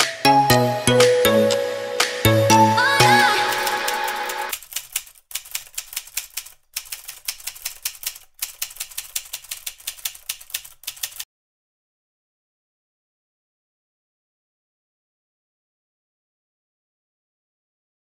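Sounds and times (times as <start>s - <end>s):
electronic music: 0.0s - 4.5s
typewriter keys clacking: 3.0s - 11.2s.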